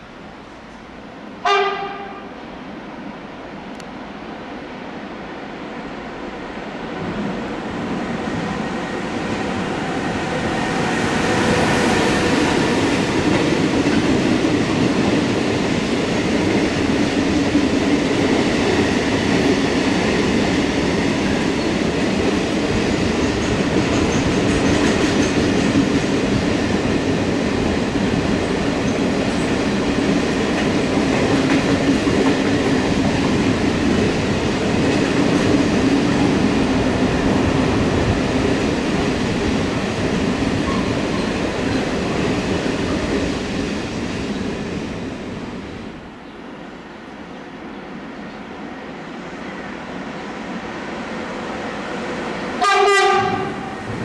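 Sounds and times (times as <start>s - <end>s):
freight train rolling and rattling: 0.0s - 54.0s.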